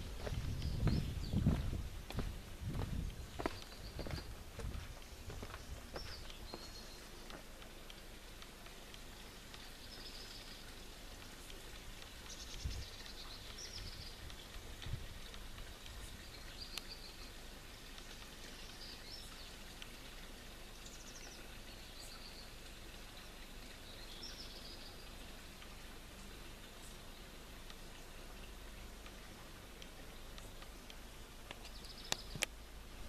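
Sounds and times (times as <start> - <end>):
birds chirping and trilling: 0.0 - 7.4, 8.9 - 17.4, 18.0 - 25.3, 31.6 - 32.5
background hiss: 0.0 - 33.0.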